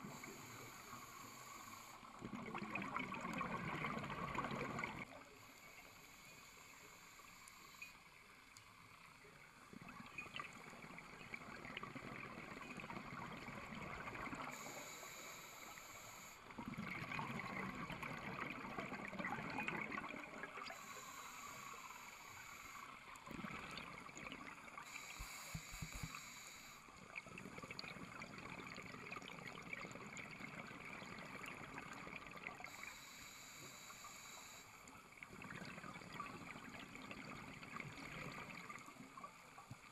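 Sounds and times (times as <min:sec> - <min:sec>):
underwater bubbles gurgling: 0:00.0 - 0:05.4, 0:08.3 - 0:33.4, 0:34.9 - 0:39.9.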